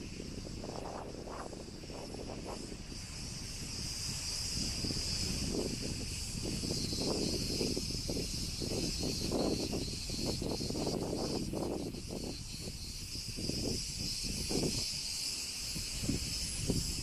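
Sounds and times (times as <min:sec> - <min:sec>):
cicadas buzzing: 0:00.0 - 0:17.0.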